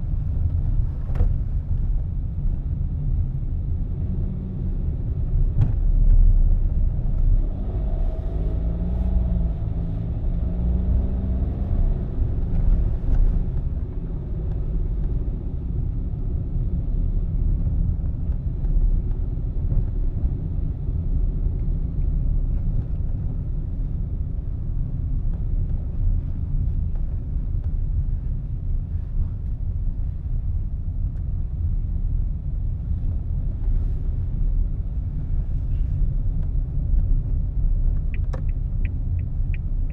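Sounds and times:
car engine and tyre rumble: 0:00.0 - 0:39.9.

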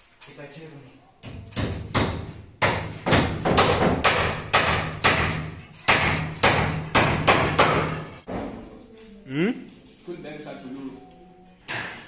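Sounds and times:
hammer striking nails into timber: 0:01.2 - 0:08.1.

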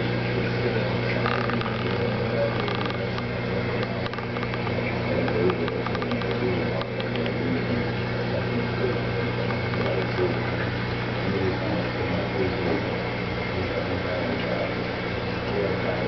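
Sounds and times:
aquarium equipment humming: 0:00.0 - 0:16.0
murmur of voices: 0:00.3 - 0:16.0.

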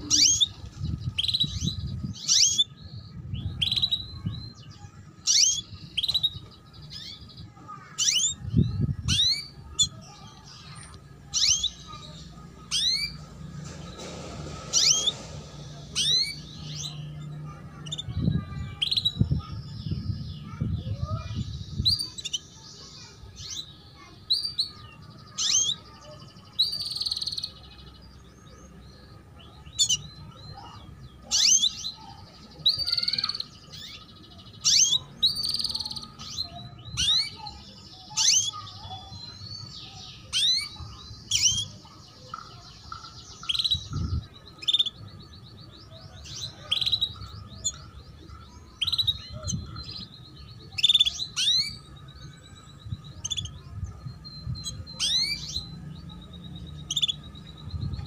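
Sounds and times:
canary chirps: 0:00.0 - 0:58.0.

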